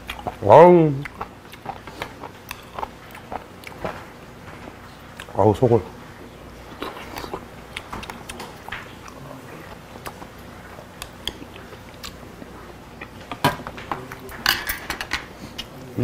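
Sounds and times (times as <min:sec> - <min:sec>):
man chewing with wet smacks: 0:00.0 - 0:04.0, 0:04.7 - 0:05.4, 0:06.7 - 0:13.4, 0:15.5 - 0:15.9.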